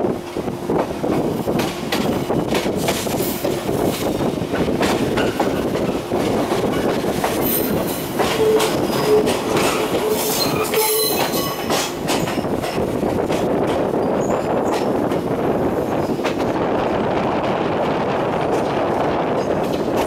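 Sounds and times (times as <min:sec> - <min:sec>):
train track rumble: 0:00.0 - 0:20.0
wheels clicking over rail joints: 0:01.1 - 0:15.3
train wheel squeal: 0:06.8 - 0:12.3, 0:14.0 - 0:14.9.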